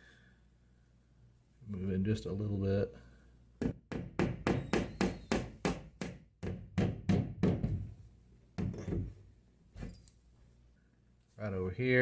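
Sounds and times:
hammer tapping nail: 3.6 - 7.8.

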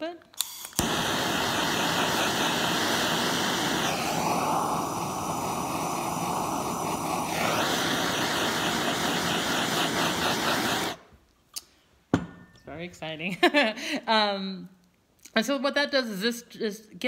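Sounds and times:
gas torch hissing: 0.4 - 11.1.

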